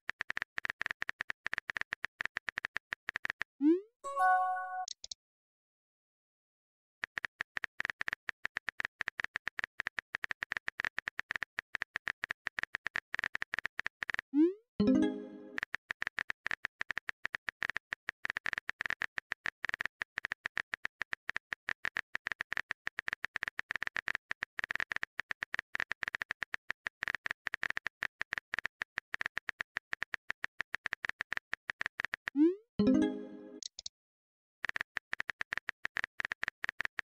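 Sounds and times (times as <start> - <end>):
keyboard typing clicks: 4.1 - 5.2, 14.8 - 33.9.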